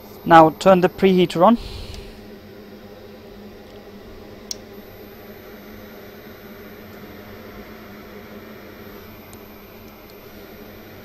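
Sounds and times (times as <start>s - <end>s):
fan humming with air whoosh: 0.0s - 11.0s.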